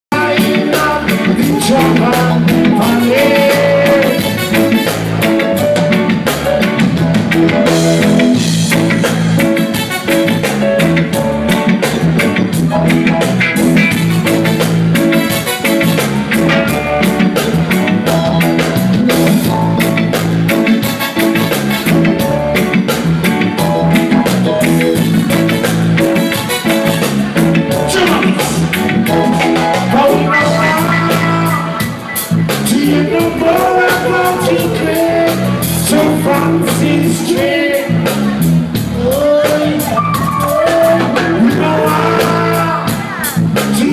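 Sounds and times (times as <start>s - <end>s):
live reggae band: 0.0s - 43.9s
person singing: 0.1s - 4.9s, 27.8s - 43.9s.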